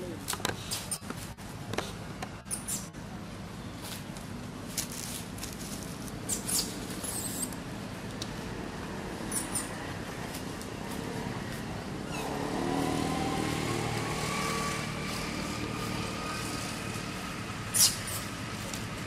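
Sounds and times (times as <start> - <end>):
short high squeak: 2.5 - 2.9, 6.3 - 7.6, 9.3 - 9.8, 17.7 - 18.2
distant vehicle engine humming: 5.9 - 19.0.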